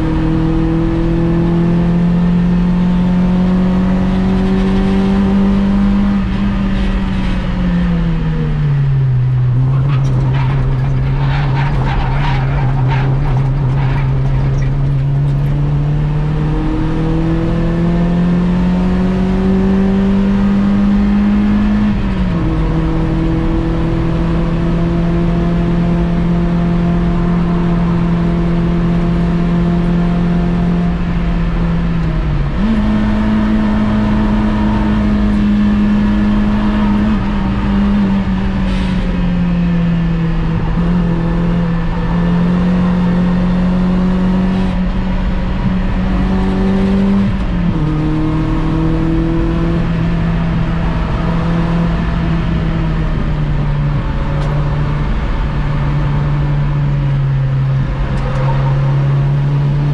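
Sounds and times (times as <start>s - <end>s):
car engine revving: 0.0s - 59.9s
rattling: 9.5s - 15.9s.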